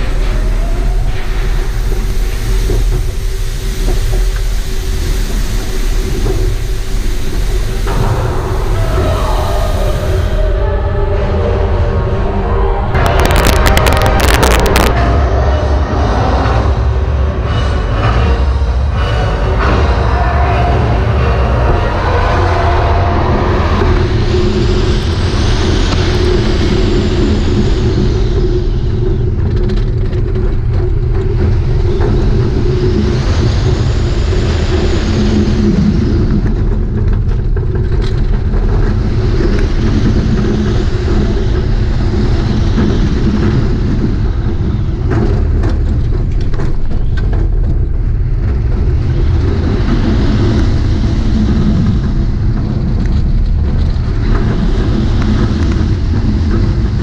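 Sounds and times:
wind rushing over microphone: 0:00.0 - 0:18.2, 0:20.6 - 0:57.0
roller coaster wheels rumbling: 0:00.0 - 0:57.0
sharp clicks and rattles: 0:13.0 - 0:15.0, 0:24.8 - 0:57.0.

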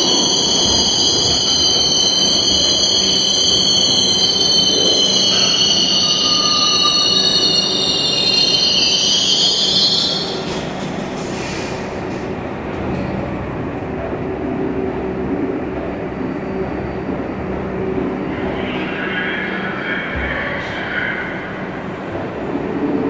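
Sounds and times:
train wheel and brake squeal: 0:00.0 - 0:12.2.

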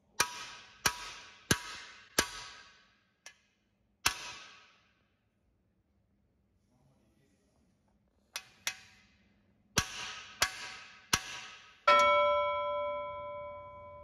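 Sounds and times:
hammer striking steel tool: 0:09.8 - 0:14.0.

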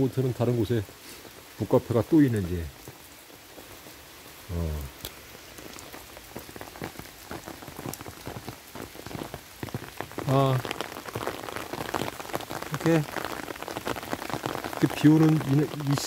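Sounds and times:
rain ticking on umbrella: 0:00.0 - 0:16.0
man's voice: 0:10.3 - 0:10.6, 0:12.7 - 0:13.1, 0:14.8 - 0:16.0.

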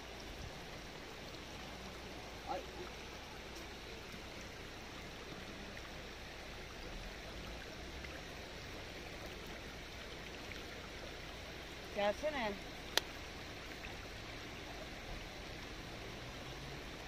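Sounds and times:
river flowing over rocks: 0:00.0 - 0:17.0.

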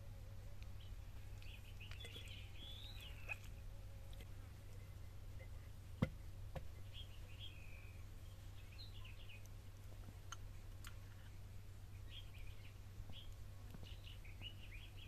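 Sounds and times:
steady low hum: 0:00.0 - 0:15.0
faint bird chirps: 0:00.8 - 0:05.7, 0:06.7 - 0:09.5, 0:12.0 - 0:15.0.

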